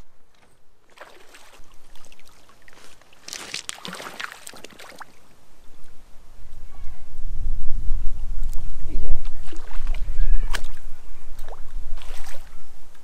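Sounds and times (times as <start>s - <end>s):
fish thrashing and splashing: 0.9s - 5.1s.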